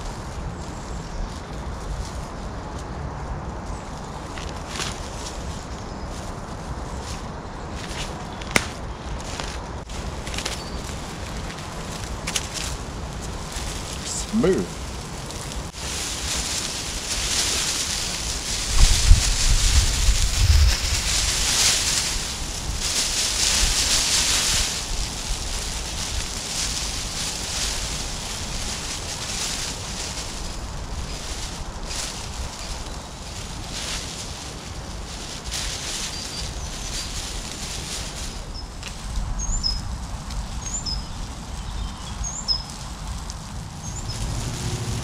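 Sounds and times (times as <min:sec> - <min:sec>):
foil blankets crinkling: 0:00.0 - 0:45.0
wind rumbling on microphone: 0:00.0 - 0:45.0
small bird chirping: 0:10.5 - 0:11.0, 0:36.0 - 0:37.3, 0:39.4 - 0:39.9, 0:40.5 - 0:42.8.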